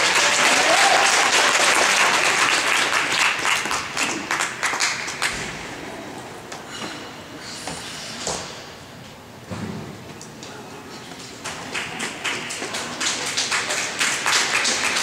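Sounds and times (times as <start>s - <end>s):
audience applauding: 0.0s - 5.4s, 11.5s - 15.0s.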